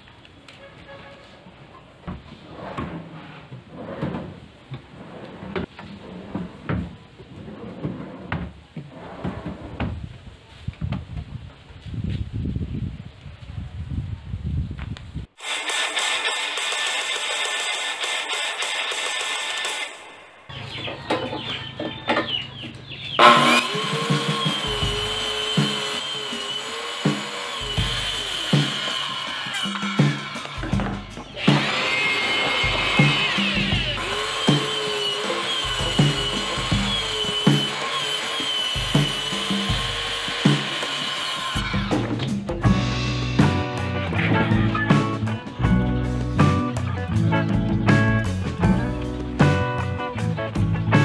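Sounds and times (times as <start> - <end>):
drawers sliding on metal slides: 2.2 - 10.0
circular saw cutting plywood: 15.4 - 20.5, 23.1 - 42.4.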